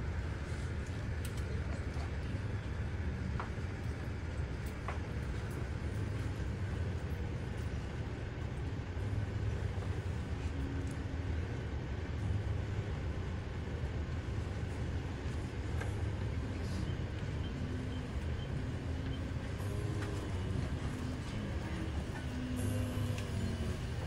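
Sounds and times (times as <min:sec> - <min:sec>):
hospital bed rolling: 0:12.6 - 0:24.0.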